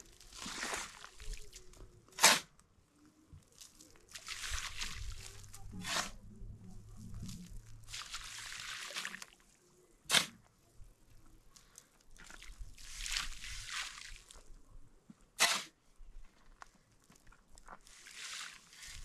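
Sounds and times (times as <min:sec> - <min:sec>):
shovel scraping sand: 0:00.3 - 0:01.1, 0:02.1 - 0:02.5, 0:05.7 - 0:06.3, 0:10.0 - 0:10.4, 0:15.4 - 0:15.8, 0:17.9 - 0:19.0
sand hitting metal wheelbarrow: 0:02.2 - 0:02.5, 0:10.1 - 0:10.4, 0:15.4 - 0:15.7.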